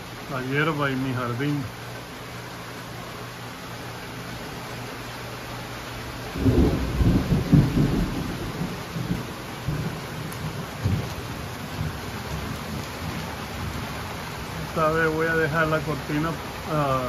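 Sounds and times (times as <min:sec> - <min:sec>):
steady rain falling: 0:00.0 - 0:17.0
thunder rumbling: 0:06.3 - 0:14.8.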